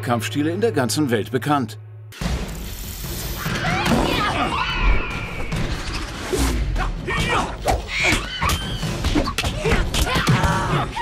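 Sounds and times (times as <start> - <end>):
fighters shouting and grunting: 6.6 - 11.0.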